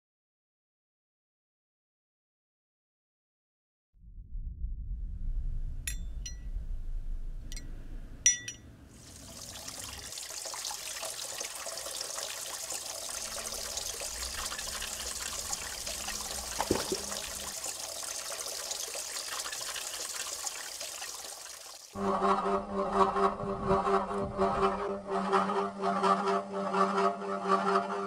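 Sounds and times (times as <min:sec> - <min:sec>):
low rumble: 0:04.0 - 0:08.8, 0:22.0 - 0:25.0
pool water lapping and trickling: 0:08.9 - 0:22.0
water splash: 0:09.0 - 0:21.8.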